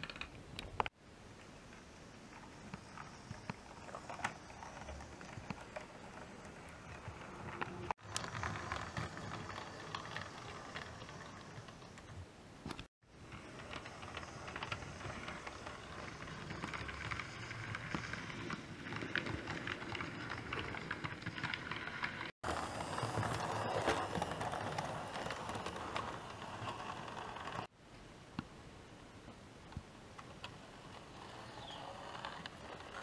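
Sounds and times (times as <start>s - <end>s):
wheels clicking over rail joints: 1.7s - 27.7s, 30.2s - 33.0s
model train running on track: 8.0s - 12.0s, 13.2s - 27.7s.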